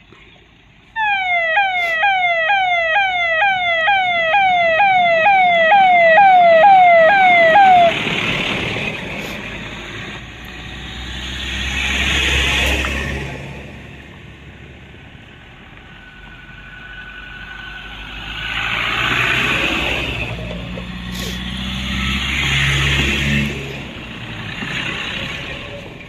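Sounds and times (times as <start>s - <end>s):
vehicles driving past on dirt: 0.0s - 26.0s
electronic siren wailing: 1.0s - 8.0s.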